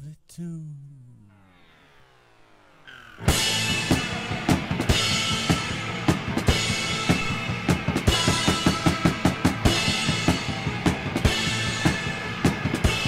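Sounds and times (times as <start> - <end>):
sustained electric guitar: 1.2 - 13.0
drum kit fast beat: 3.3 - 13.0.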